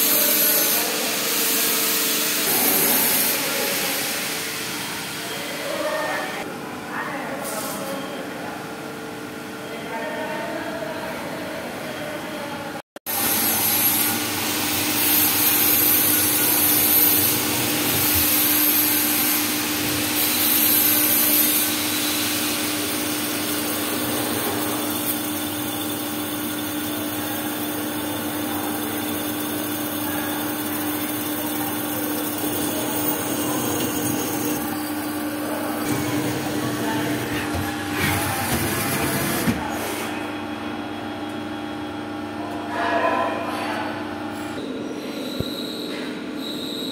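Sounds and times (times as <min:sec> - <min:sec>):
lathe spindle hum: 0:13.2 - 0:39.5.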